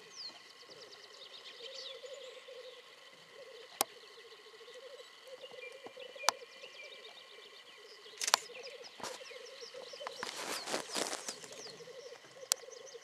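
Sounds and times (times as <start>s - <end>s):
grouse bubbling coo: 0.0s - 13.0s
harsh hissing bird calls: 0.0s - 13.0s
sharp clicks: 8.2s - 8.6s.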